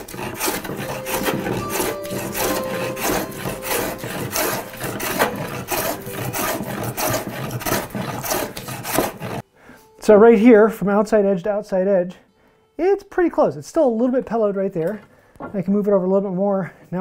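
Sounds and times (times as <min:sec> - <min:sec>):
hand plane rasping across wood: 0:00.0 - 0:09.4.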